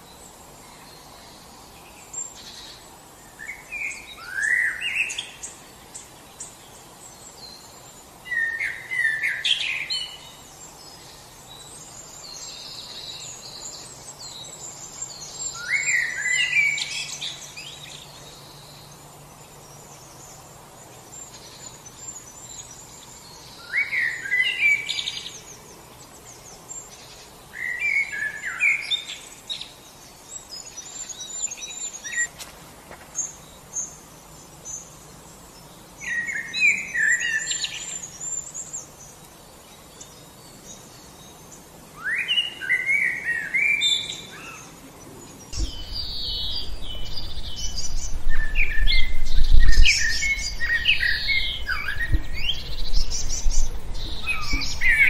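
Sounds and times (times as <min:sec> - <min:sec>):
songbirds singing: 0:00.0 - 0:55.0
low rumble: 0:45.6 - 0:55.0.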